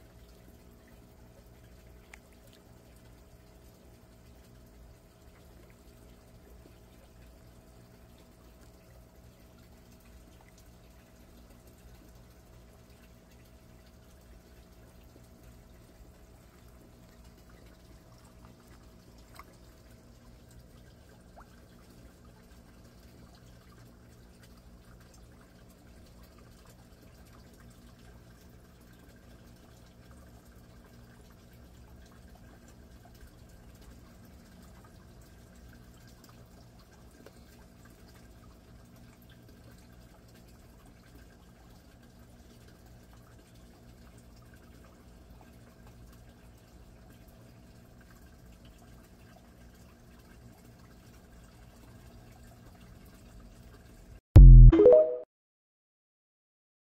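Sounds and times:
water trickling and dripping: 0.0 - 54.2.

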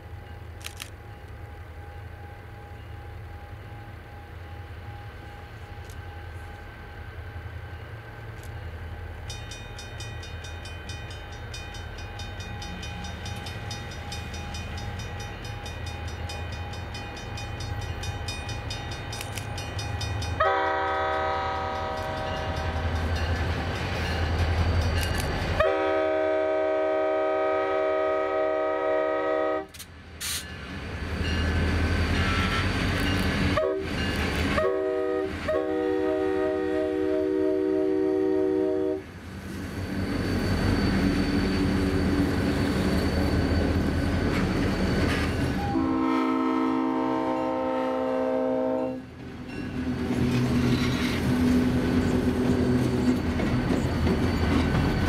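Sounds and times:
diesel locomotive rumbling: 0.0 - 55.0
multi-note train air horn: 20.4 - 22.8, 25.6 - 30.4, 32.2 - 32.8, 33.5 - 39.1, 45.6 - 49.1.

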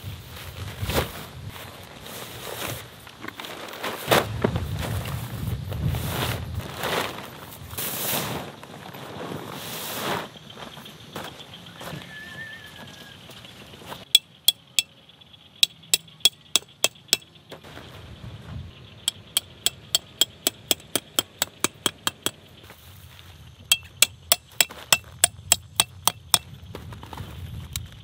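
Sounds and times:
hammering metal stake: 14.1 - 14.9, 15.6 - 17.3, 19.1 - 22.4, 23.7 - 26.5.

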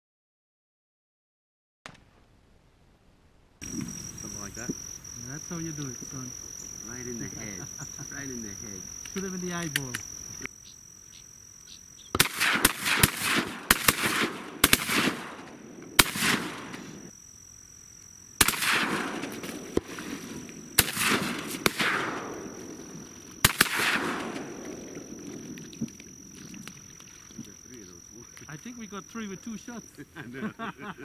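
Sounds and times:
shotgun blasts with echo: 12.1 - 17.1, 18.4 - 25.6.

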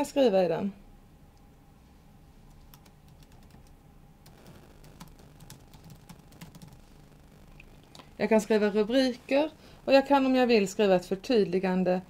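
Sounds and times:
faint typing on computer keyboard: 2.5 - 6.9.

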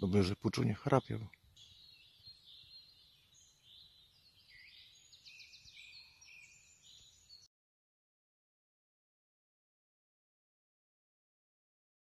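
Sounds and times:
songbirds chirping: 0.0 - 7.5
bird trill: 0.4 - 7.5.

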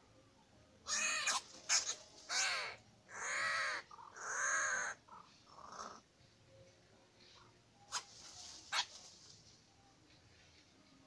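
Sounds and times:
bird distress cries: 0.9 - 6.0.

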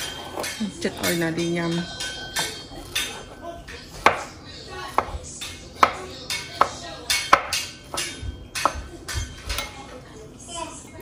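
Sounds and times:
knife chopping on wooden board: 4.0 - 4.3, 5.8 - 8.8.

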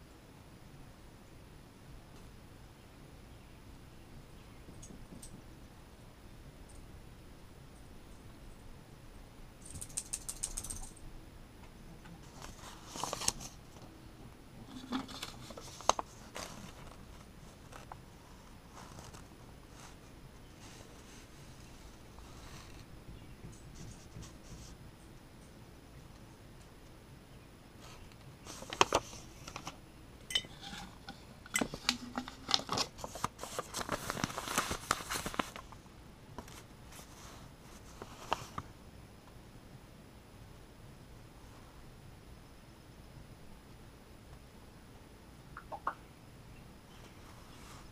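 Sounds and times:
paper crinkling and rustling: 12.2 - 13.9, 14.7 - 22.9, 27.8 - 29.8, 30.6 - 35.8, 36.4 - 38.7.

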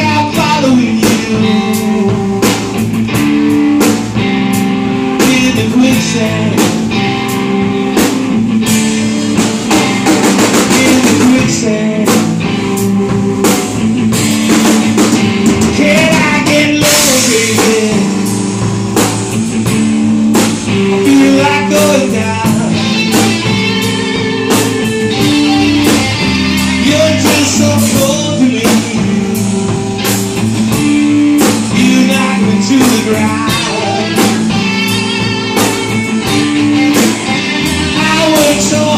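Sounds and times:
man singing: 0.0 - 2.7, 5.2 - 7.1, 10.4 - 12.9, 15.1 - 18.4, 20.8 - 23.8, 24.8 - 29.8, 31.4 - 34.9, 37.2 - 38.9
live rock band playing: 0.0 - 38.9.

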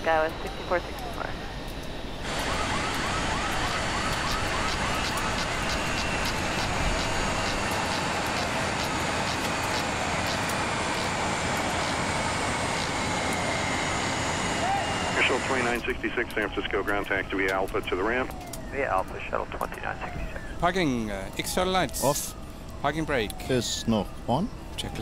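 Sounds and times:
jet engine whine: 0.0 - 25.0
warbling tones: 2.3 - 15.6.

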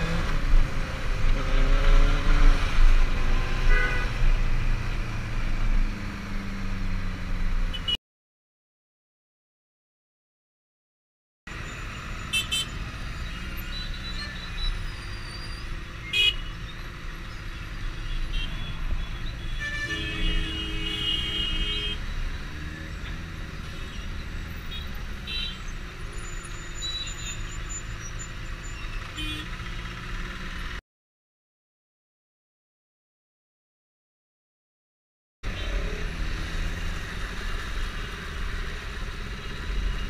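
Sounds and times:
vehicle horns tooting: 3.6 - 4.2, 18.1 - 22.0, 29.2 - 29.6.

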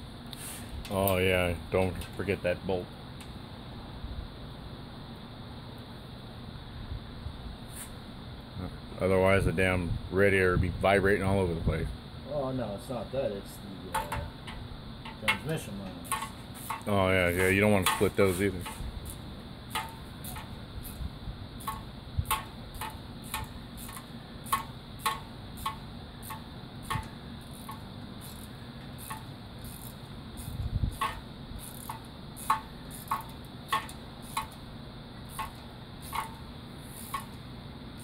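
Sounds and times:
ratchet wrench clicking: 16.0 - 21.0, 21.6 - 34.6, 35.2 - 37.4.

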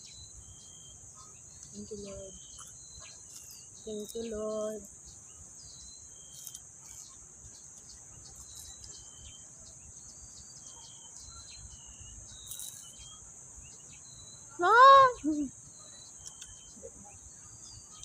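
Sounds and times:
bird chirps: 0.0 - 18.0
woman exclaiming: 14.6 - 15.5.

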